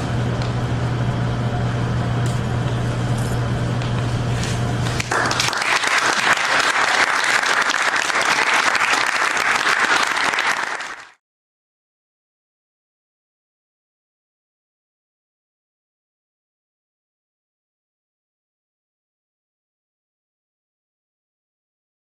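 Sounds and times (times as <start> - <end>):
steady low hum: 0.0 - 6.5
audience applauding: 5.0 - 11.2.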